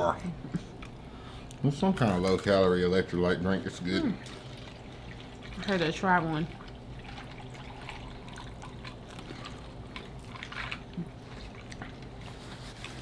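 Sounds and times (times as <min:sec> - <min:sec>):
drink pouring into a cup: 0:02.0 - 0:13.0
small clicks and drips: 0:04.2 - 0:12.2.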